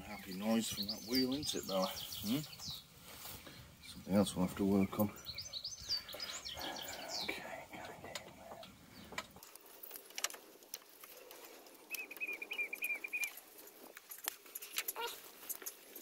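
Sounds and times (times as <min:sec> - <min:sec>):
bird trilling: 0:11.9 - 0:13.4.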